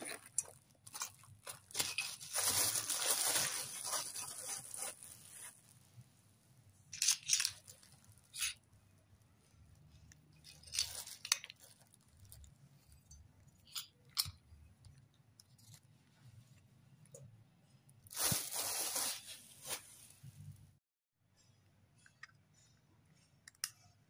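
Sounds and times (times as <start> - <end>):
rustles and scrapes of handling: 0.0 - 6.2, 15.4 - 20.8.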